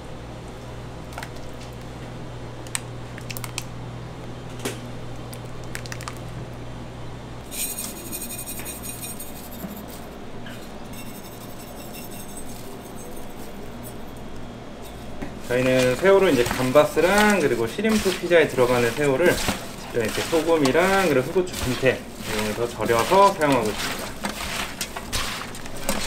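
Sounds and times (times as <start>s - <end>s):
steady low hum: 0.0s - 26.0s
utensils and dishes clinking: 7.5s - 14.2s, 14.8s - 26.0s.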